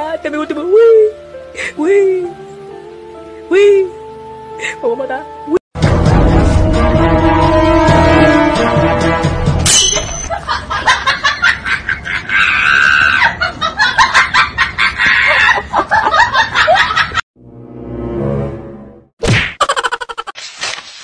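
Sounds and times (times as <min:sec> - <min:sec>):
people screaming and laughing: 0:10.3 - 0:17.2.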